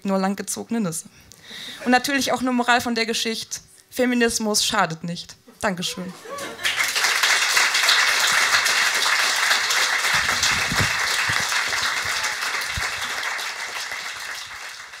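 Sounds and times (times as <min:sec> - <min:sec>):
audience applause: 0:06.2 - 0:15.0.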